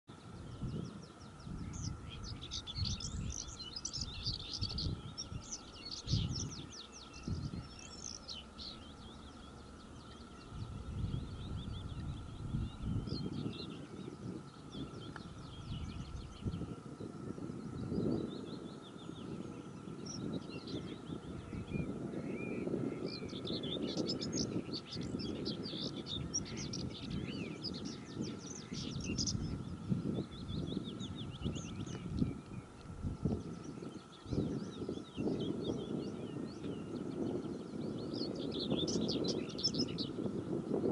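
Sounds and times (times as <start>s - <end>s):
songbirds singing: 0.1s - 40.9s
wind gusts on microphone: 0.1s - 40.9s
low uneven rumble: 0.4s - 23.8s.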